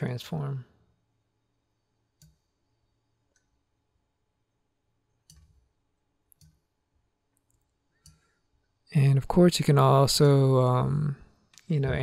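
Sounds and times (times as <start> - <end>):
computer mouse clicks: 2.2 - 2.5, 5.2 - 5.7, 6.3 - 6.7.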